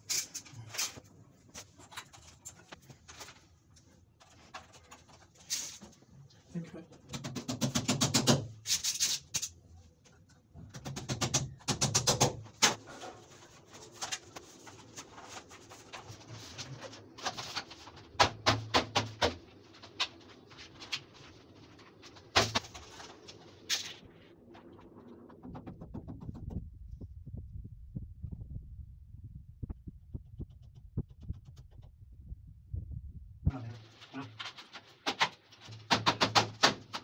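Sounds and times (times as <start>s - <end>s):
hammer knocking on plastic panels: 25.4s - 26.6s, 35.1s - 37.0s.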